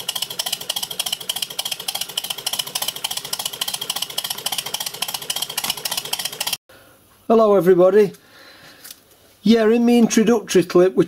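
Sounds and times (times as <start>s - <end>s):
model steam engine exhaust beats: 0.0s - 6.6s.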